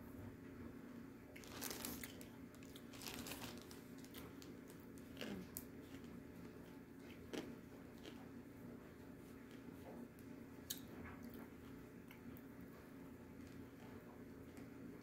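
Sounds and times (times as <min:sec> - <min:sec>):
plastic bag crinkling: 0:01.4 - 0:05.4
clay crunching while chewed: 0:01.4 - 0:08.4.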